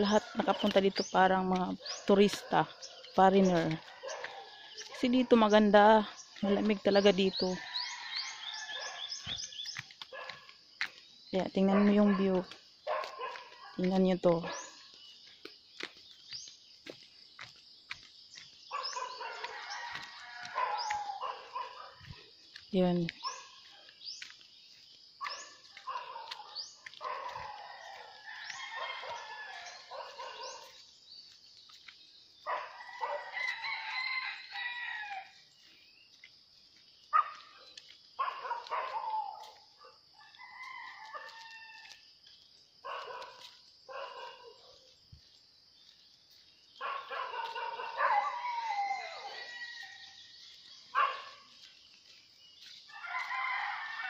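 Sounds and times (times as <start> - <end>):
roosters crowing: 7.4 - 9.2, 19.0 - 21.9, 25.9 - 30.6, 32.5 - 35.4, 40.2 - 42.0, 47.0 - 50.4, 52.9 - 54.0.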